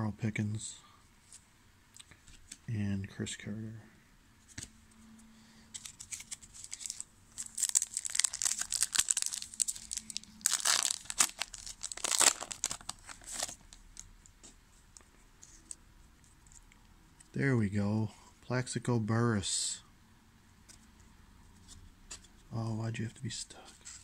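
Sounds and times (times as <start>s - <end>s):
foil pack tearing and crinkling: 5.8s - 13.6s.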